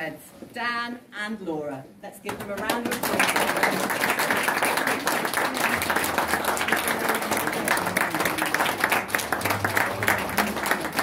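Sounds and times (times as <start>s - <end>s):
crowd applauding: 2.7s - 11.0s.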